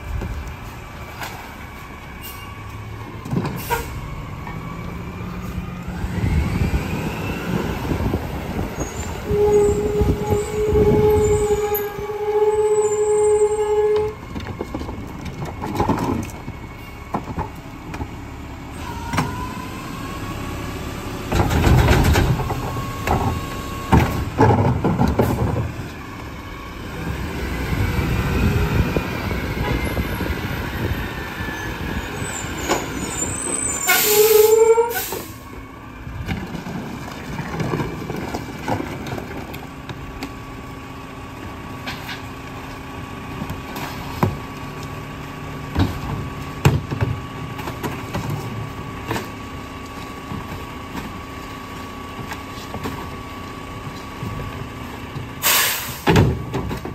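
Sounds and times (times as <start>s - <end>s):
garbage truck engine running: 0.0s - 56.9s
rising and falling whine: 4.8s - 8.4s
loud hiss of air: 55.4s - 56.2s.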